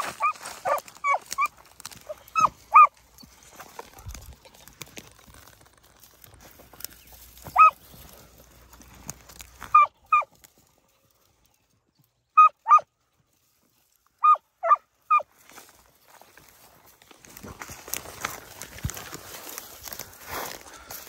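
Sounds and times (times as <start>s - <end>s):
dogs barking: 0.0s - 3.0s, 7.5s - 7.8s, 9.7s - 10.3s, 12.4s - 12.9s, 14.2s - 15.3s
footsteps in dry brush: 0.0s - 21.0s.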